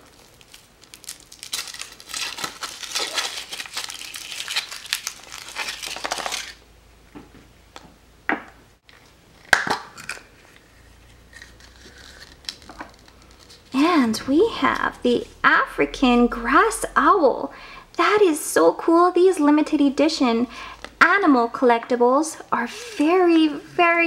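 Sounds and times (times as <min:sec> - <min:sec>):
chocolate shell cracking: 0:00.0 - 0:06.6, 0:11.4 - 0:13.4
foil wrapper crinkling: 0:00.0 - 0:06.6, 0:11.2 - 0:13.8.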